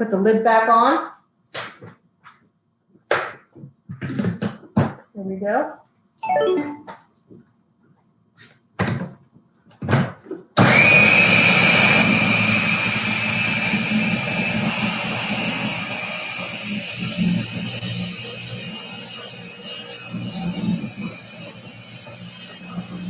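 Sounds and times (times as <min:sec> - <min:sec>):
blender whining: 0:10.6 - 0:23.0.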